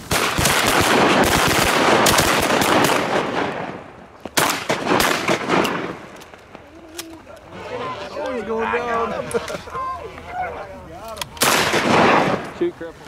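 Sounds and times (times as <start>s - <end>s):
shotgun shots: 0.0s - 6.1s, 11.4s - 12.6s.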